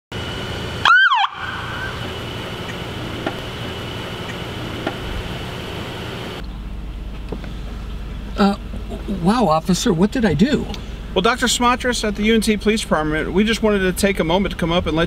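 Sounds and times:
police siren whoop: 0.8s - 2.2s
car door shutting: 2.7s - 3.7s, 4.3s - 5.3s.

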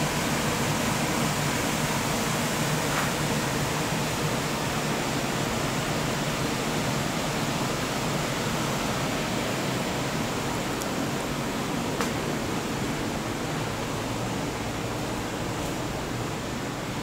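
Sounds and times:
engine room rushing noise: 0.0s - 17.0s.

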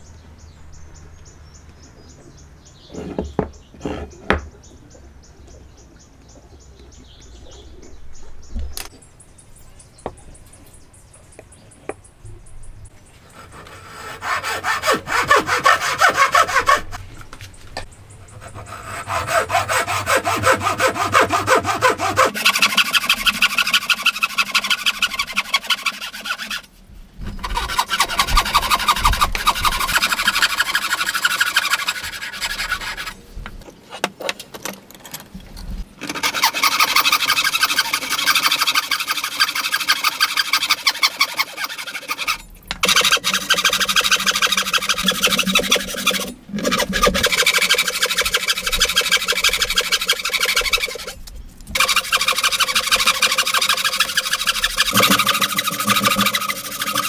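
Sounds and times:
hand saw cutting wood: 13.3s - 17.0s, 18.4s - 26.7s, 27.3s - 33.2s, 36.0s - 57.0s.

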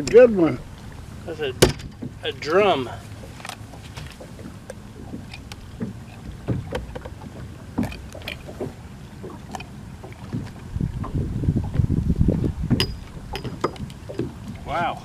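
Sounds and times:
soft knocks and rustles: 3.0s - 14.6s.

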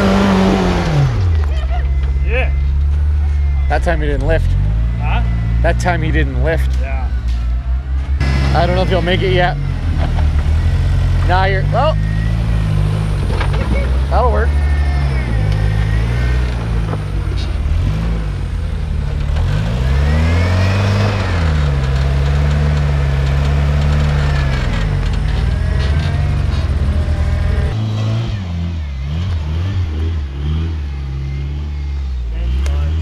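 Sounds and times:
engine revving under load: 0.0s - 33.0s.

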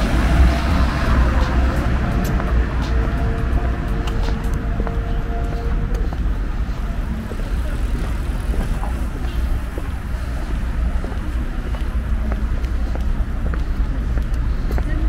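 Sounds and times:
low rumble: 0.0s - 14.6s
background hum of activity: 0.0s - 15.0s.

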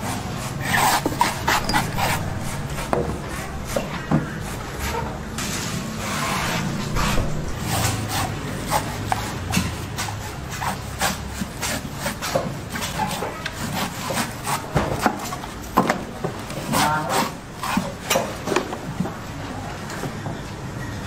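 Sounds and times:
knife chopping coconut husk: 7.6s - 15.4s.

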